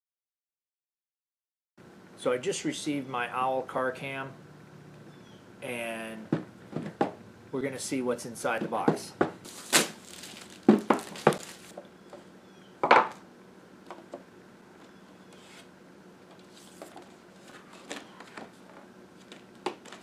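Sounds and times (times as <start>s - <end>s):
cardboard and paper rustling: 9.4s - 11.8s, 16.3s - 20.0s
plastic shrink wrap crackling: 9.4s - 11.8s.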